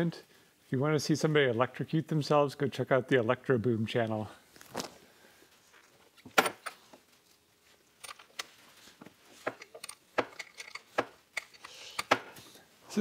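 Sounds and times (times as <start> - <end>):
metallic clicks and clinks: 9.6 - 12.1.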